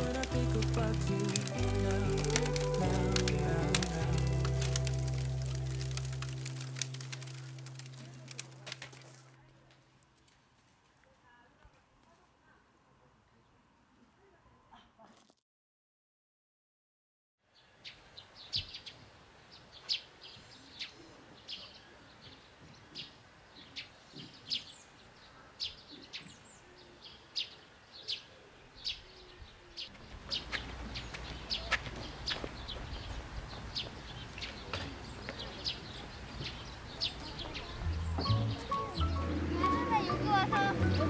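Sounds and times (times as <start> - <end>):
small birds chirping: 0.0 - 9.2, 17.5 - 41.0.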